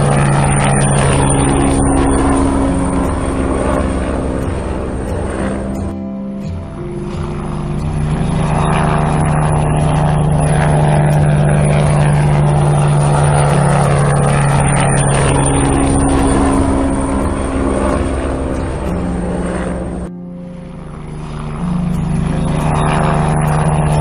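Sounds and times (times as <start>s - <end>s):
helicopter rotor drone: 0.0s - 24.0s.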